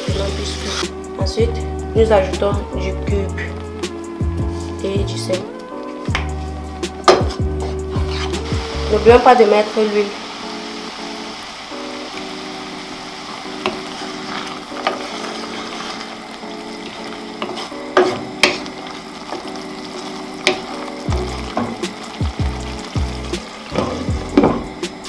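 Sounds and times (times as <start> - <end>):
sauce sizzling in oil: 0.0 - 1.2, 5.7 - 25.0
wooden spatula knocking on pan: 7.0 - 7.4, 17.4 - 18.6, 20.4 - 22.6, 23.7 - 24.8.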